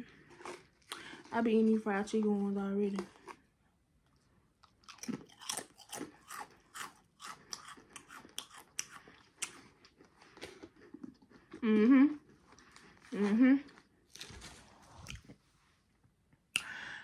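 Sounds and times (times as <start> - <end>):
potato crisp crunching: 4.6 - 11.6.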